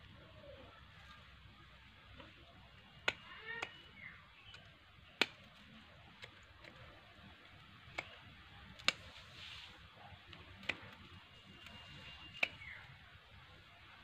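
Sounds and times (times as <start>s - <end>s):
pruning shears snipping branches: 2.2s - 7.1s, 7.8s - 9.6s, 10.3s - 12.9s.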